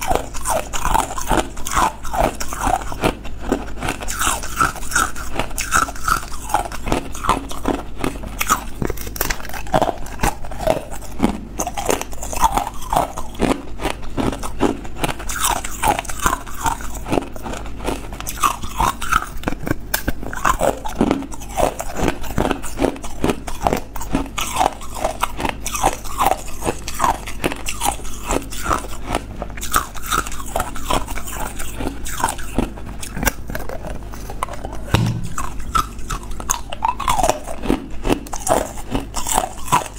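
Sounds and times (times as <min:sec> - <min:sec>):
ice cubes crunching: 0:00.0 - 0:11.0, 0:20.0 - 0:39.9.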